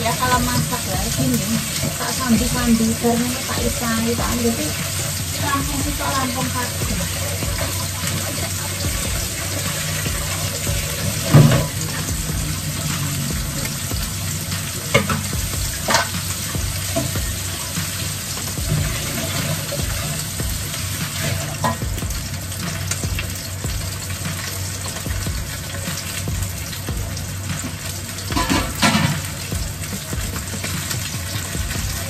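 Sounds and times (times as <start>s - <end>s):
food sizzling in oil: 0.0s - 32.0s
utensil knocking against pan: 14.9s - 17.3s, 28.3s - 29.3s.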